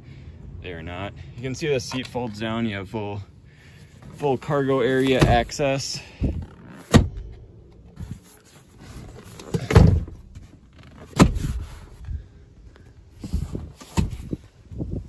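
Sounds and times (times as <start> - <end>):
seat heavy clunk: 6.2 - 12.0.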